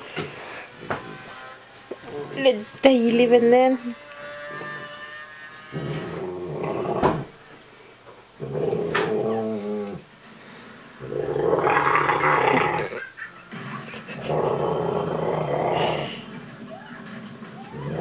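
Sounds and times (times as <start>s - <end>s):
dog grumbling growly: 5.7s - 7.3s, 8.4s - 10.1s, 11.0s - 16.3s, 17.7s - 18.0s.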